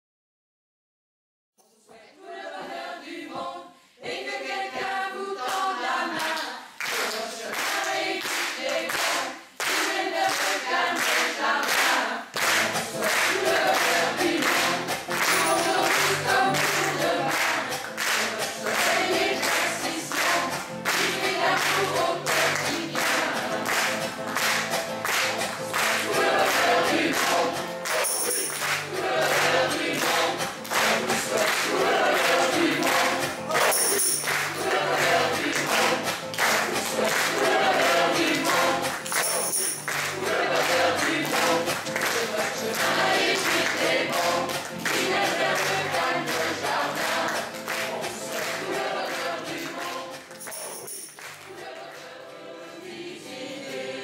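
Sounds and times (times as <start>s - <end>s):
mixed choir singing a pop song: 1.7s - 50.6s, 51.4s - 54.0s
strummed acoustic guitar: 12.4s - 50.4s.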